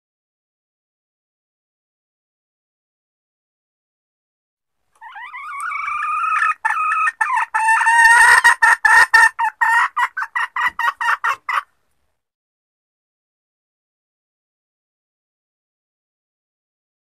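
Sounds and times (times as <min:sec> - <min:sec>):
hen drawn-out call: 0:05.0 - 0:11.6
hen clucking: 0:05.0 - 0:11.7.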